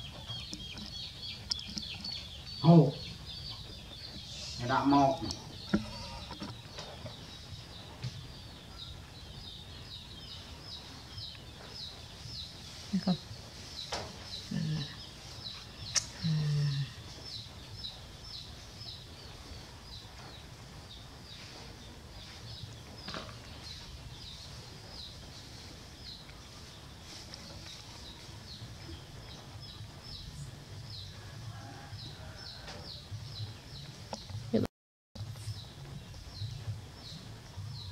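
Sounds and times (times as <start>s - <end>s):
small bird chirping: 0.0s - 21.6s.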